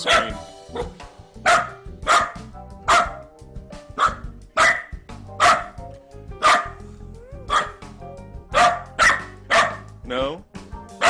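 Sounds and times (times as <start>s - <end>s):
dog barking: 0.0s - 3.2s, 4.0s - 5.8s, 6.4s - 6.8s, 7.5s - 7.8s, 8.5s - 9.9s.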